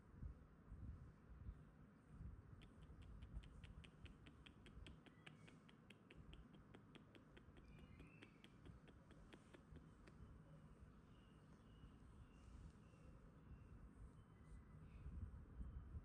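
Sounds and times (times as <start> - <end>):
rapid sharp clicks: 2.6 - 10.2.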